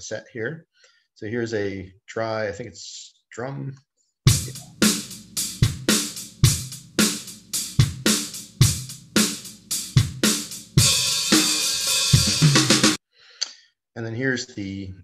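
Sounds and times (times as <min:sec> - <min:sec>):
drum kit beat: 0:04.3 - 0:13.0.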